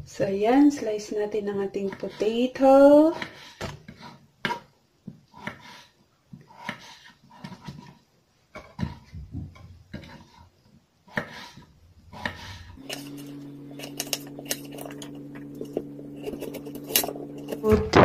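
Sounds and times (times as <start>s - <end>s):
knife slicing potato: 1.4s - 4.7s, 5.3s - 8.0s, 9.9s - 17.8s
steady low hum: 12.1s - 18.0s.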